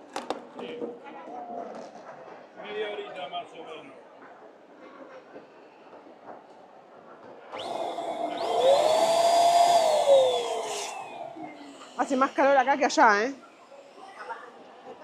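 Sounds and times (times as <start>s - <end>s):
balloon inflator motor whine: 7.5s - 12.8s.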